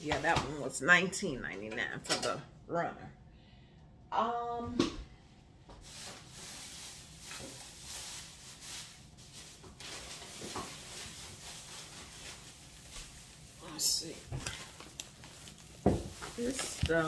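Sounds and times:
plastic bags rustling: 5.7s - 17.0s.

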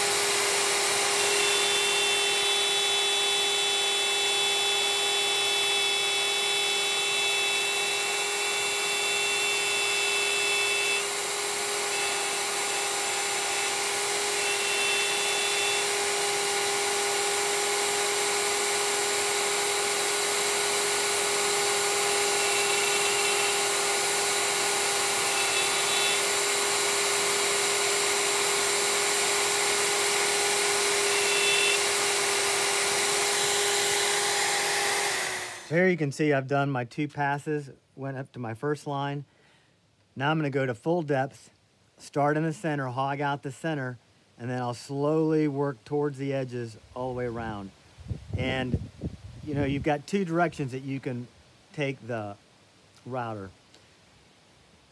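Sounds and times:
router whining cutting wood: 0.0s - 35.8s.

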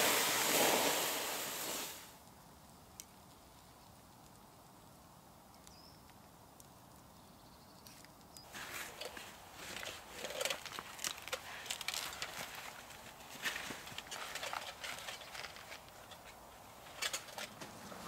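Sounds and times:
faint high bird chirps: 5.6s - 6.0s.

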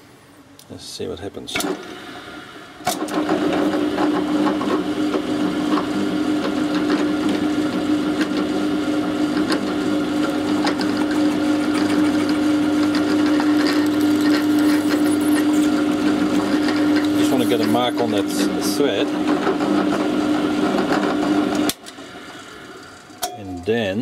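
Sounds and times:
electric drill cutting metal: 10.2s - 18.4s.

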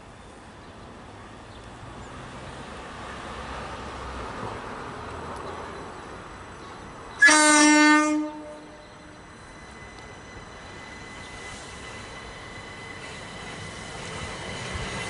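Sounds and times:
train rumble: 0.0s - 15.0s
train horn: 7.2s - 9.2s.

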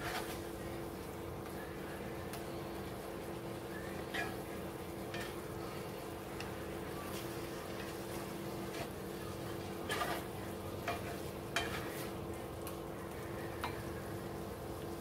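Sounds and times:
metal spoon scraping skillet: 4.1s - 5.4s, 9.8s - 12.1s.

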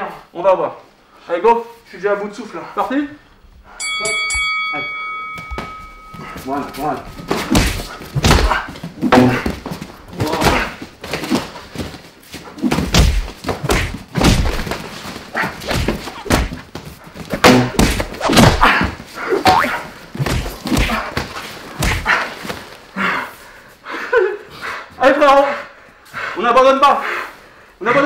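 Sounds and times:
boxing gloves thudding: 5.3s - 22.8s
fighters exhaling and grunting: 5.6s - 27.9s.

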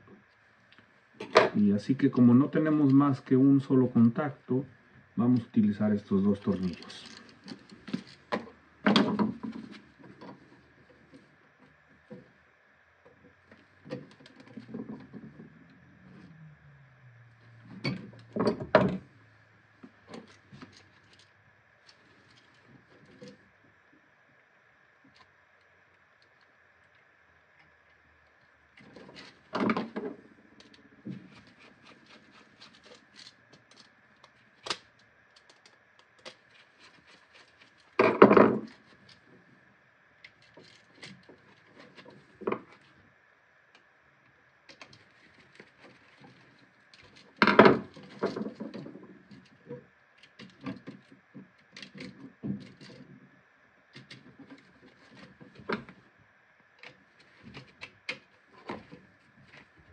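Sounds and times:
hands fitting wires: 28.7s - 39.4s.

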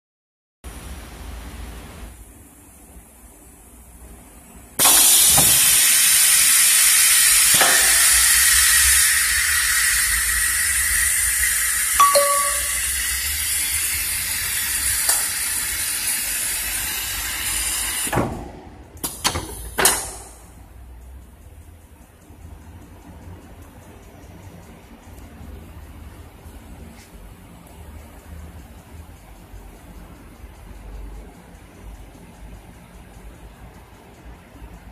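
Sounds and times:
loud steady machine hiss: 0.7s - 18.2s.

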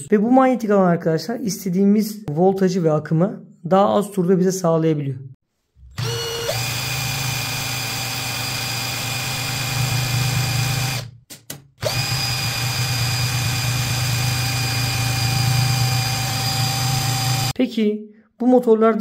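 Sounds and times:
cordless drill whine: 5.9s - 11.1s, 11.8s - 17.6s.

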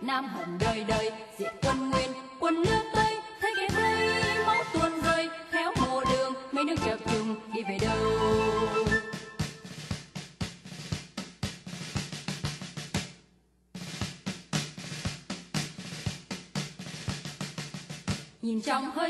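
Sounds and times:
snare drum strokes: 8.8s - 13.2s, 13.8s - 18.4s.

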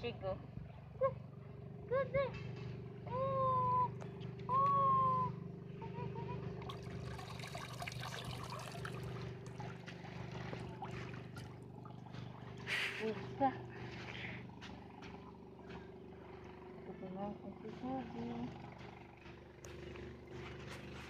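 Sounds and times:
steady low hum: 0.0s - 21.0s
water splashing: 6.6s - 13.3s.

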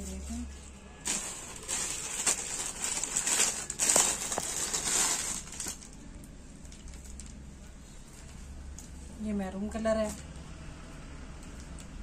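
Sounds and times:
plastic and fabric rustling: 0.0s - 8.6s.

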